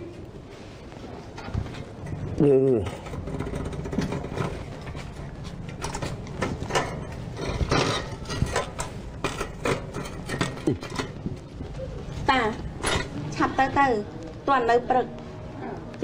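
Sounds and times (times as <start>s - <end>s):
metallic clicks and knocks: 2.8s - 11.4s.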